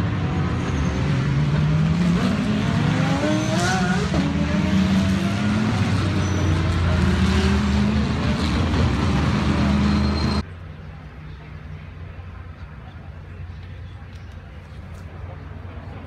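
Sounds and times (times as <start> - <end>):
race cars passing: 0.0 - 10.4.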